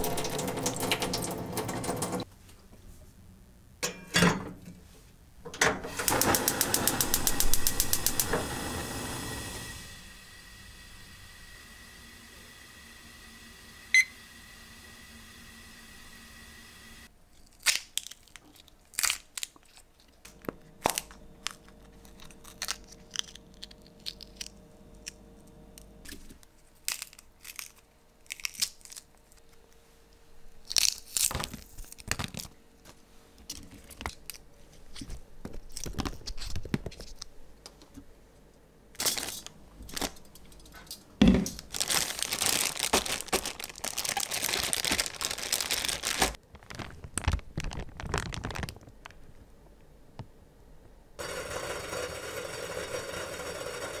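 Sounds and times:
plastic bag crinkling: 17.3s - 25.2s, 30.5s - 32.6s, 39.0s - 40.9s, 41.5s - 49.6s
pea pods splitting and clicking: 17.4s - 25.2s, 26.8s - 29.4s, 30.6s - 32.5s.

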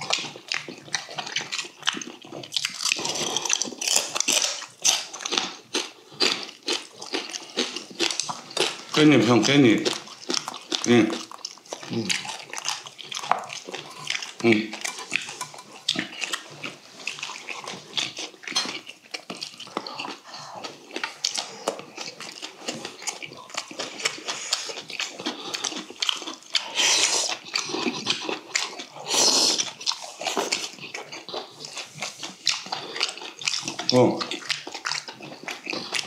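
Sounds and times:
chewing and mouth smacking: 0.0s - 36.0s
loud breathy slurps: 26.6s - 27.8s.

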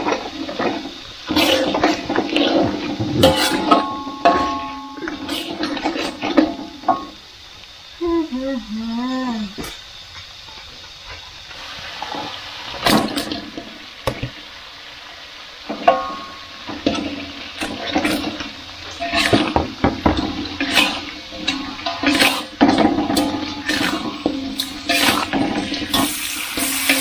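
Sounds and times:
metal spatula scraping a wok: 0.0s - 7.1s, 15.7s - 27.0s
frying sizzle: 0.0s - 27.0s.

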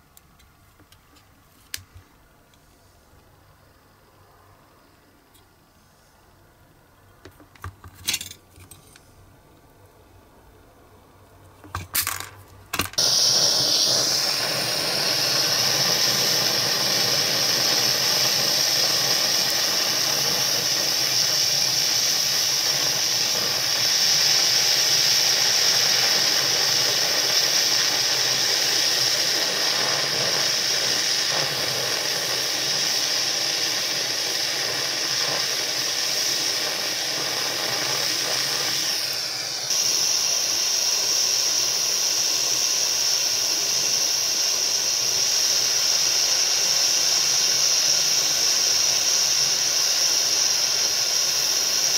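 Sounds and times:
gas torch hissing: 12.8s - 51.9s.

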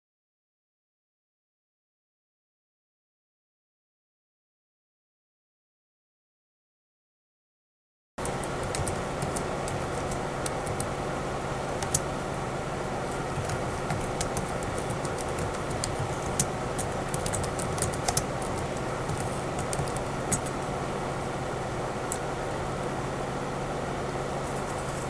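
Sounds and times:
laptop keyboard typing: 8.2s - 12.2s, 13.0s - 20.7s
low hum and hiss: 8.2s - 25.0s.

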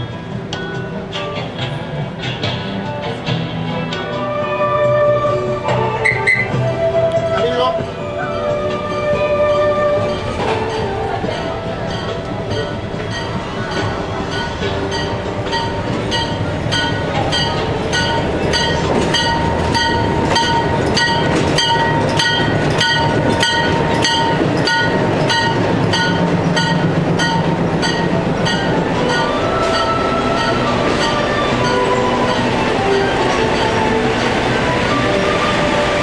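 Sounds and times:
diesel locomotive running: 0.0s - 36.0s
train wheels clacking: 10.0s - 36.0s.

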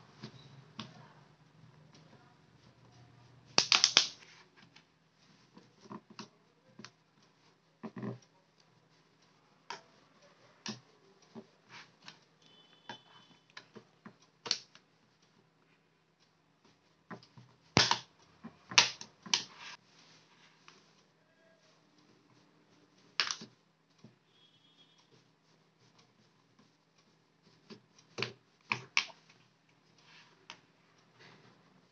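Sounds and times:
plastic clicks and snaps: 3.6s - 4.8s, 13.5s - 14.8s, 23.1s - 23.6s.

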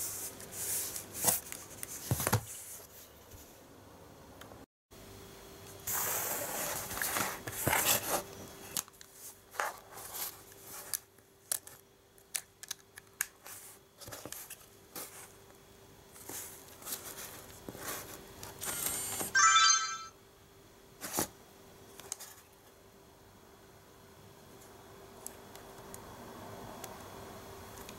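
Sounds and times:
electronic start-up tone: 19.4s - 20.1s.

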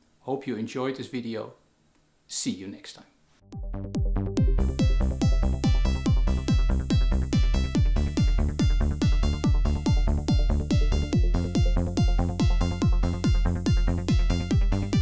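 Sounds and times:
electronic dance music: 3.6s - 15.0s.

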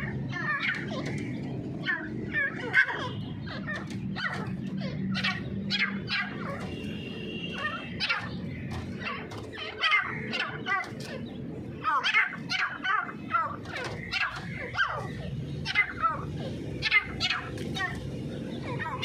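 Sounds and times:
birds chirping sharply: 0.0s - 19.0s.

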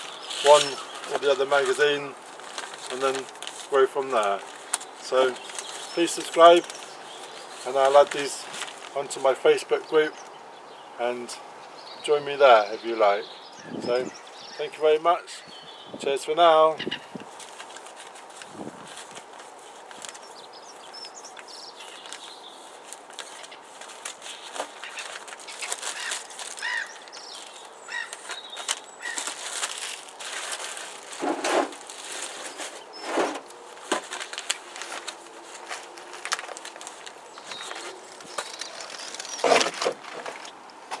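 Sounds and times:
plastic wrapper crinkling: 0.0s - 9.0s, 17.2s - 40.5s
paper packets shuffling: 0.0s - 9.4s, 17.2s - 40.6s.

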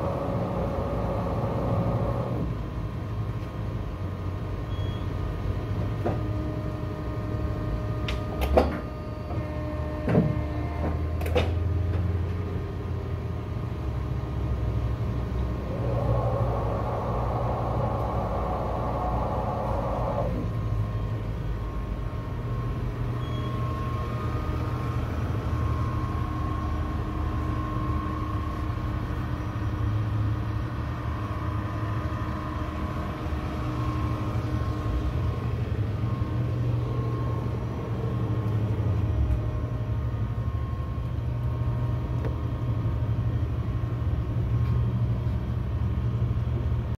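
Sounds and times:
paper cutter motor hum: 0.0s - 2.6s, 15.4s - 43.2s.

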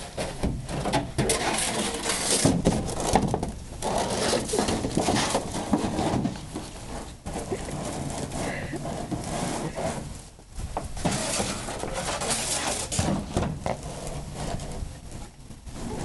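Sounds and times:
dog chewing plastic pool: 0.0s - 10.2s.

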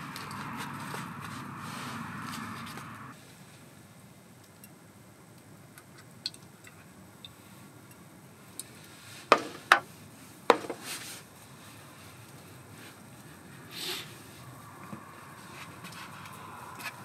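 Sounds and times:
sharp knocks: 9.3s - 9.8s, 10.5s - 10.8s.

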